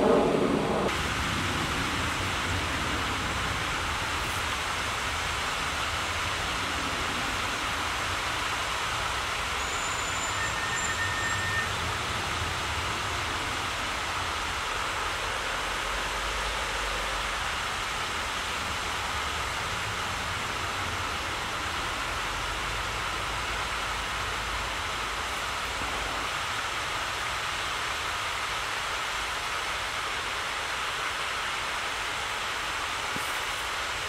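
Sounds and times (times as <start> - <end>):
low rumble: 0.0 - 3.6
outdoor rushing noise: 0.0 - 10.0.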